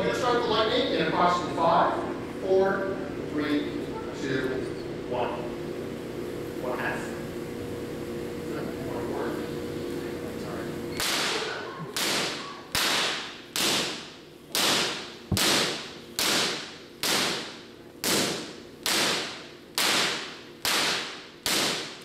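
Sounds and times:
high-voltage spark cracks: 12.0 - 22.0.

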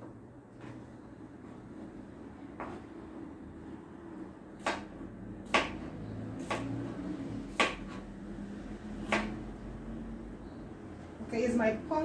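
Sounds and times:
knife chopping on cutting board: 2.6 - 2.8, 4.6 - 6.9, 7.5 - 8.0, 9.0 - 9.4.

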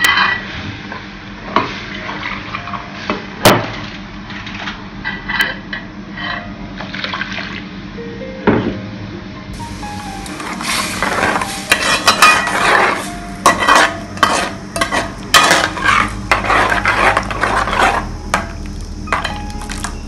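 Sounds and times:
metal spoon scraping a pot: 10.6 - 18.5.

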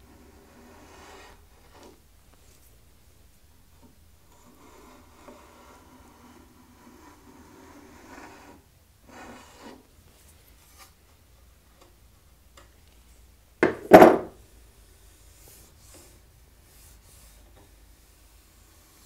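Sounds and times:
fingers rubbing along wood: 4.3 - 9.8
metal tool clunking on workbench: 13.6 - 14.3.

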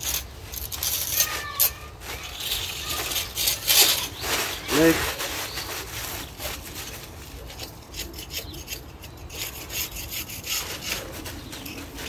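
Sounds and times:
packing paper crinkling: 0.0 - 7.8.

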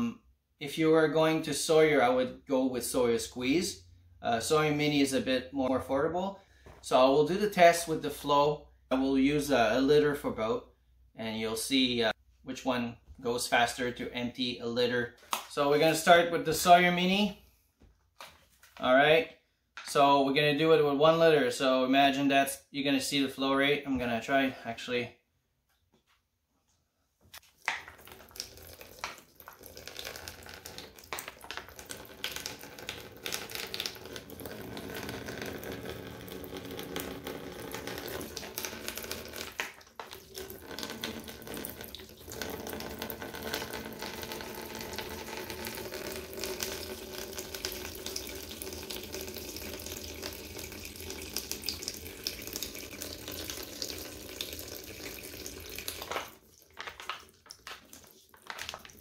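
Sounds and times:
water stream splashing into plastic tub: 27.4 - 59.0.

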